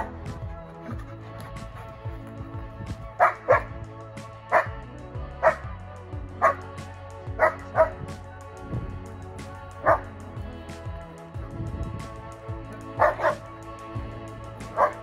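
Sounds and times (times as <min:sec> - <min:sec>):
dogs barking: 0:00.0 - 0:03.8, 0:04.5 - 0:05.8, 0:06.4 - 0:08.1, 0:09.7 - 0:10.1, 0:12.8 - 0:13.5, 0:14.6 - 0:15.0
background music: 0:00.0 - 0:15.0.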